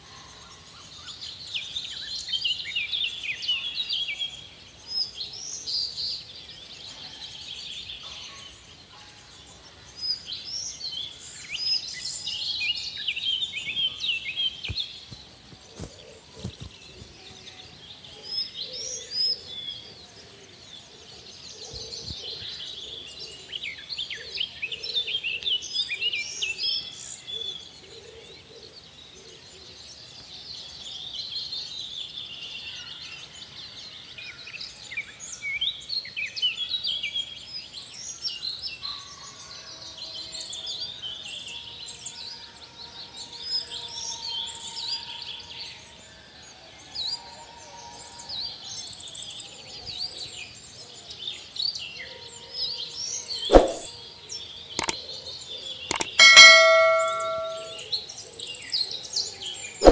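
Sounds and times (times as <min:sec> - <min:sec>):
small birds chirping: 0:10.1 - 0:19.9, 0:54.6 - 0:57.8
sharp click: 0:53.5 - 0:53.9, 0:55.9 - 0:57.8.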